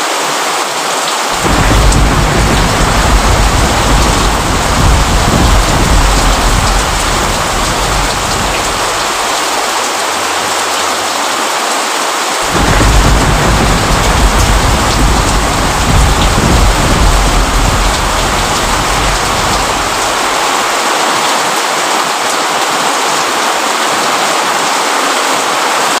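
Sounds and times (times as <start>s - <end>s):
steady rain falling: 0.0s - 26.0s
thunder rumble: 1.3s - 11.1s, 12.4s - 20.7s.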